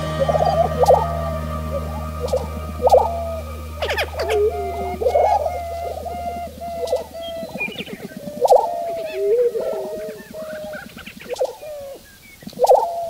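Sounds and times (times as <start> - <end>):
birds bubbling cooing calls: 0.0 - 13.0.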